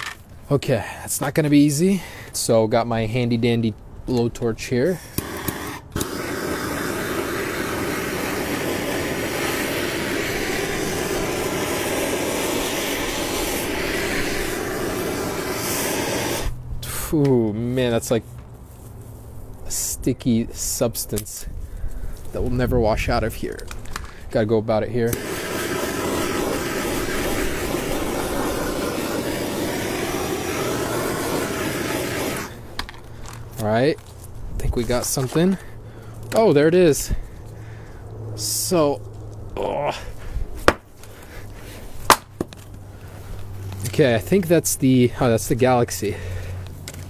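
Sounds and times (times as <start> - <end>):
blowtorch flame hissing: 5.0 - 17.0, 25.1 - 32.8.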